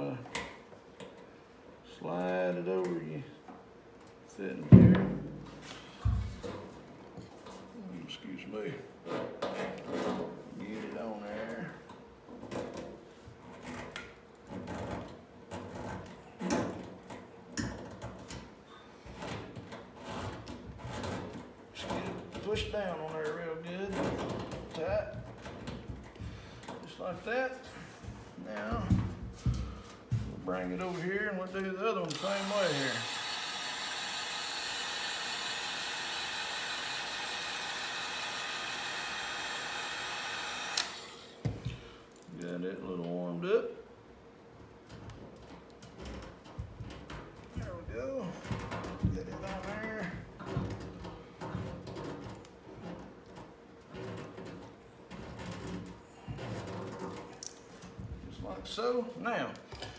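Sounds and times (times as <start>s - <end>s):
heat gun fan whirring: 0.0s - 59.9s
heat gun switch click: 40.7s - 41.0s.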